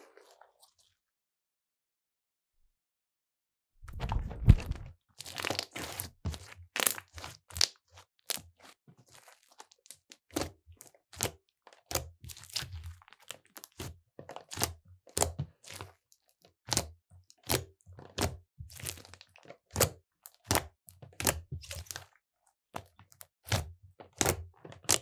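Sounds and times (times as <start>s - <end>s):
slime popping and squelching: 3.9s - 9.6s.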